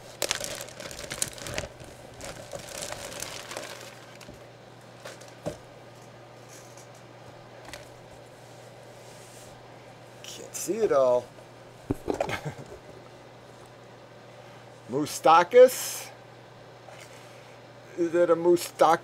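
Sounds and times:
plastic bag crinkling: 0.0s - 4.4s.

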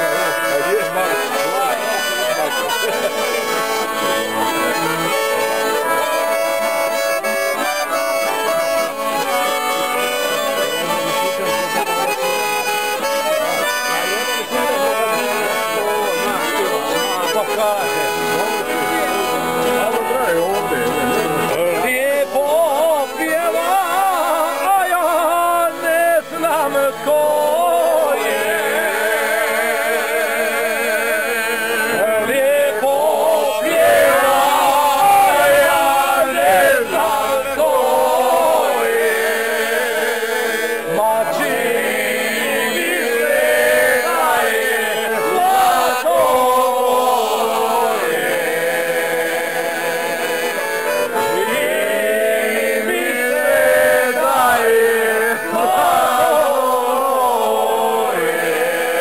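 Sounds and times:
accordion chords: 0.0s - 59.0s
men singing together: 19.8s - 59.0s.

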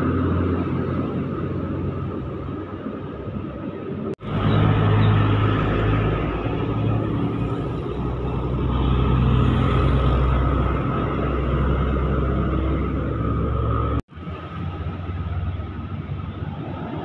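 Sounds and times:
trucks and motorcycles passing: 0.0s - 17.0s.

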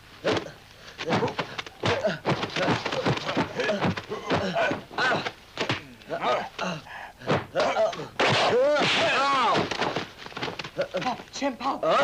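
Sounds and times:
punch and kick impacts: 0.2s - 5.9s, 7.2s - 10.6s
fighters shouting and grunting: 0.2s - 10.0s, 10.8s - 12.0s.

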